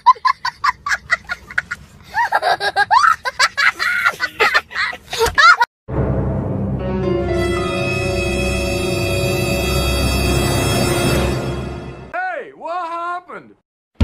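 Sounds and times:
child laughing and squealing: 1.2 - 5.7
ominous music: 5.9 - 12.1.

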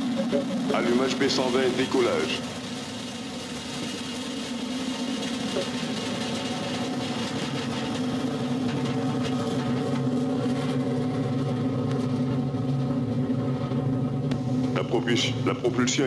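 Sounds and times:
rocket motor roaring: 0.0 - 16.0.

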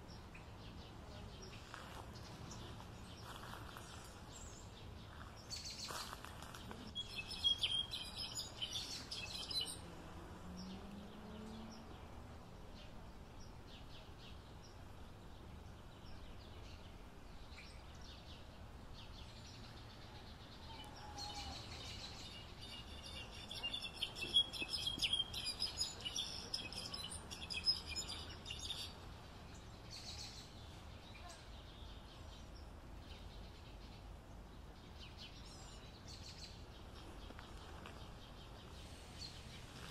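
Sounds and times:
low background hiss: 0.0 - 39.9
songbird twittering: 6.9 - 9.8, 20.6 - 33.3.

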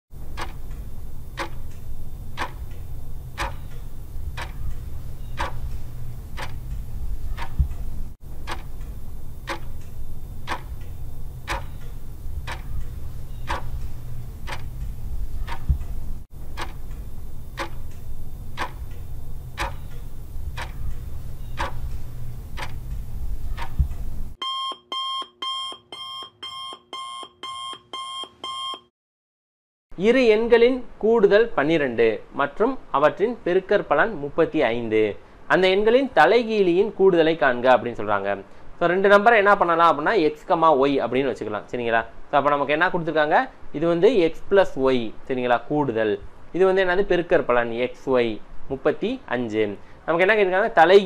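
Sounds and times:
clock-like ticking: 0.2 - 24.1
low hum: 0.2 - 24.4
rapid alarm beeps: 24.4 - 28.9.

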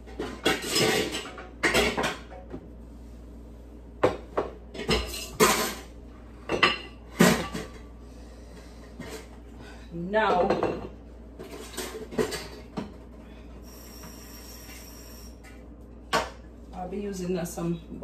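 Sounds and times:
dishes and cutlery clattering: 0.1 - 2.5, 4.8 - 5.9, 6.5 - 7.9, 10.3 - 13.0.

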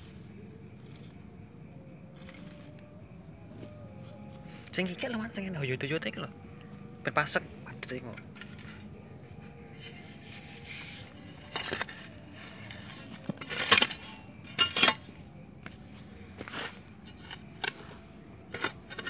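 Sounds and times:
insects chirping: 0.0 - 19.0
hand tool scraping soil: 9.8 - 15.1, 16.3 - 19.0.

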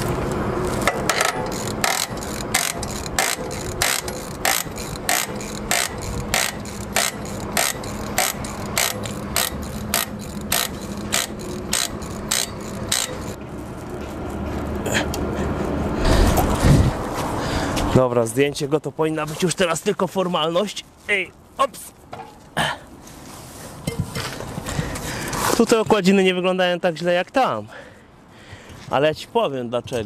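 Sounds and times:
ratchet wrench clicking: 0.8 - 13.4.

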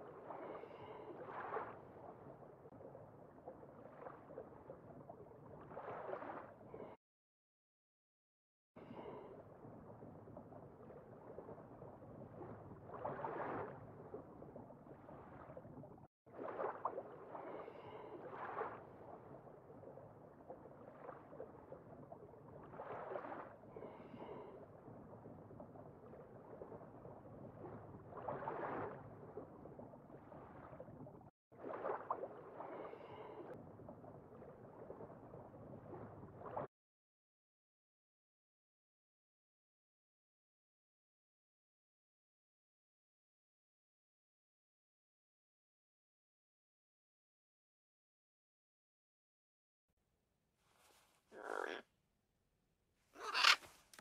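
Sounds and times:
rushing water with bubbling gurgles: 0.0 - 7.0, 8.8 - 36.7.

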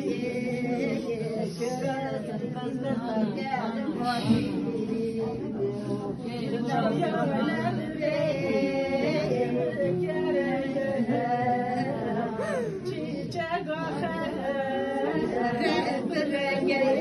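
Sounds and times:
person singing unaccompanied: 6.6 - 17.0.

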